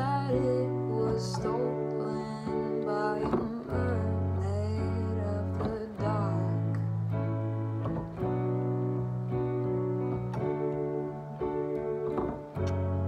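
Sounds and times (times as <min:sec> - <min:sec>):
electronic keyboard chords: 0:00.0 - 0:13.0.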